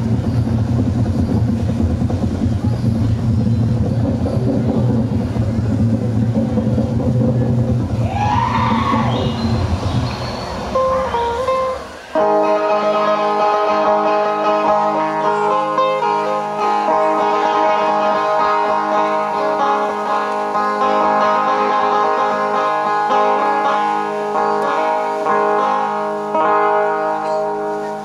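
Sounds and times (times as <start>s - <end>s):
steady low drone: 0.0s - 14.8s
plucked lute melody: 10.8s - 28.0s.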